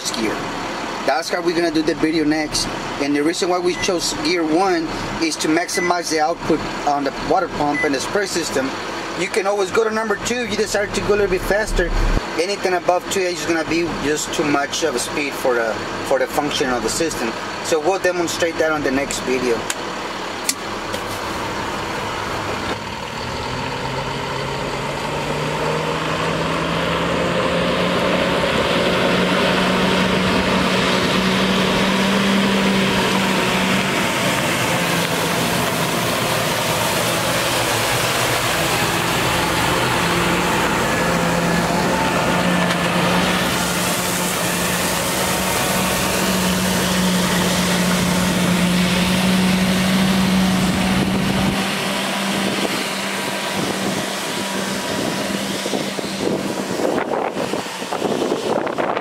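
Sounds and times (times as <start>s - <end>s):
diesel truck engine under load: 0.0s - 59.0s
water spraying: 27.6s - 58.5s.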